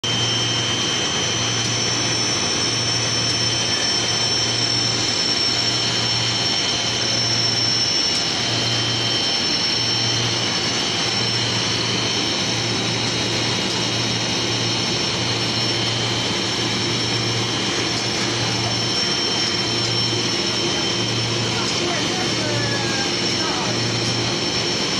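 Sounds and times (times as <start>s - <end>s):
machine noise with high whine: 0.0s - 24.9s.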